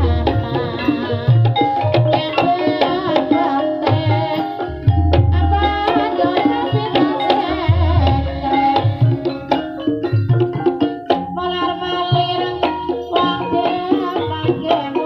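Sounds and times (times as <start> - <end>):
wavering melodic line: 0.0 - 10.6
hand drum strokes: 0.0 - 15.0
ringing pitched percussion: 0.0 - 15.0.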